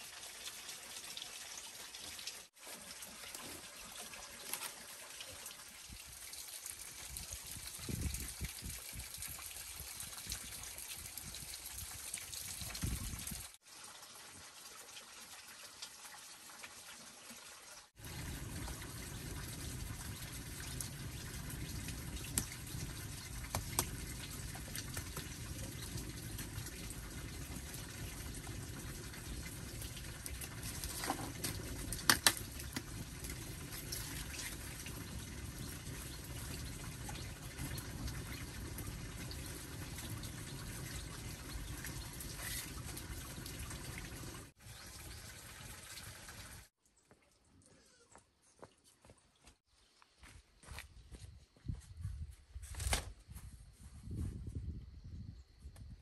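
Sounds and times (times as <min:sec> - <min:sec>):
fire crackles and pops: 0:18.0 - 0:42.6.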